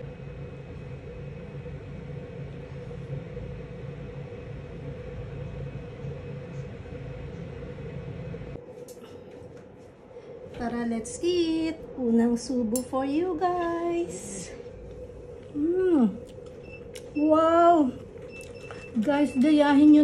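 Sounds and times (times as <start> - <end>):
low mechanical hum: 0.0 - 20.0.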